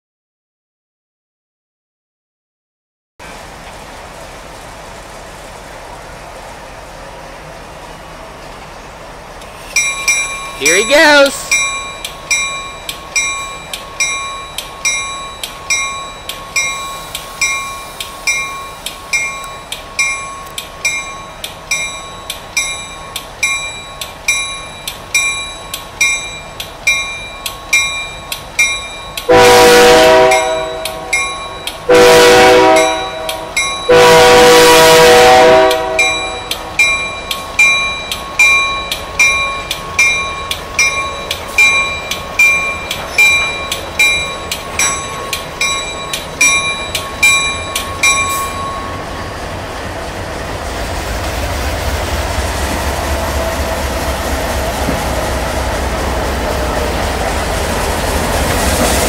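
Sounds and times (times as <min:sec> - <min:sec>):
diesel engine rumbling: 0:03.3 - 0:59.0
bell ringing: 0:09.8 - 0:29.4, 0:30.3 - 0:31.8, 0:32.8 - 0:34.0, 0:36.0 - 0:49.2
locomotive air horn blasts: 0:29.3 - 0:31.2, 0:31.9 - 0:36.3.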